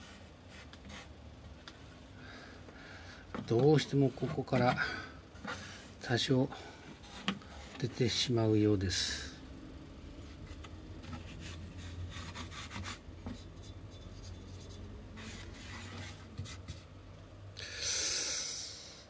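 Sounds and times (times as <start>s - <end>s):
rubbing and scraping on wood: 10.2s - 16.9s.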